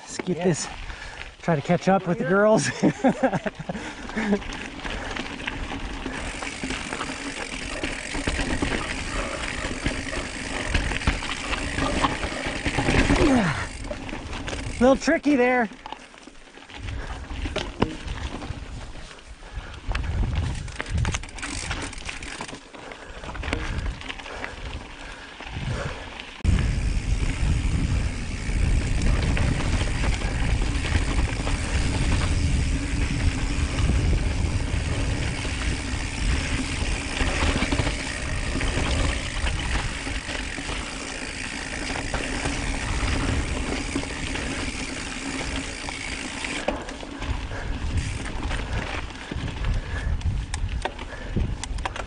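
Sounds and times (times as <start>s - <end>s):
bike chain and frame rattling: 0.0s - 52.0s
bike tyres rolling on dirt: 0.0s - 52.0s
wind buffeting microphone: 16.8s - 21.9s, 23.3s - 46.3s, 47.2s - 52.0s.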